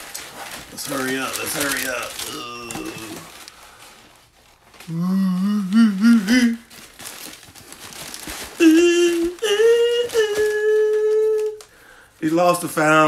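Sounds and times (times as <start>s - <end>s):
tissue paper rustling: 0.0s - 13.0s
man humming: 2.1s - 3.4s, 4.8s - 6.7s, 8.6s - 11.6s.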